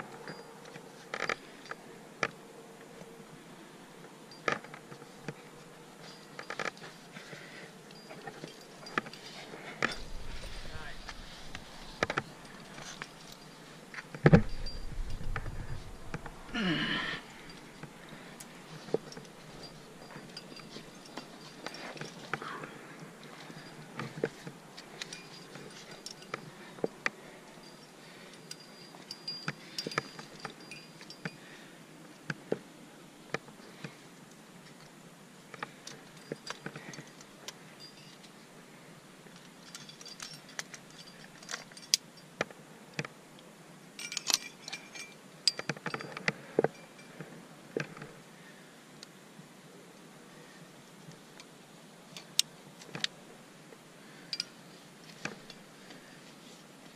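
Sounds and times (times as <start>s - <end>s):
metal climbing gear jangling: 0.1s - 2.3s, 4.3s - 32.2s, 35.5s - 38.4s, 39.3s - 42.4s, 44.0s - 48.2s, 54.0s - 56.2s
carabiners clicking: 4.4s - 22.6s.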